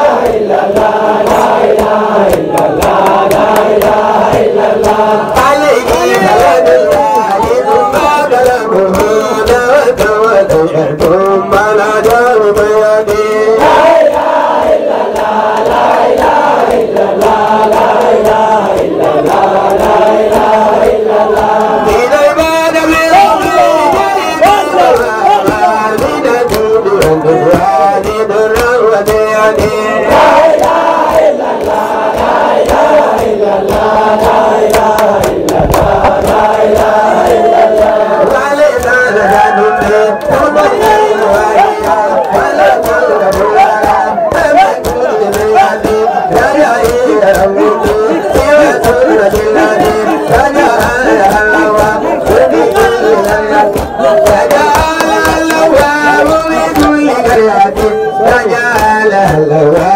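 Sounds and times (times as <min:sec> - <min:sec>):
steady percussion beat: 0:00.0 - 0:59.9
voices chanting together: 0:00.0 - 0:59.9
man chanting into a microphone: 0:05.0 - 0:14.0, 0:21.4 - 0:30.7, 0:35.6 - 0:59.9.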